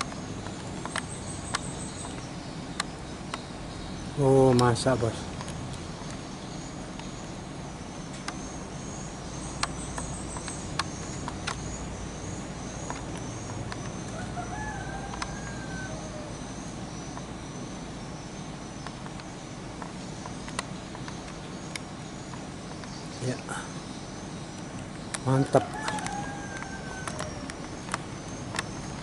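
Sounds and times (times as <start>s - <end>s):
sharp clicks: 0.0s - 3.5s, 4.4s - 6.2s, 9.4s - 14.3s, 15.1s - 15.4s, 18.8s - 23.8s, 24.5s - 29.0s
distant rooster crowing: 14.0s - 16.8s, 25.2s - 28.0s.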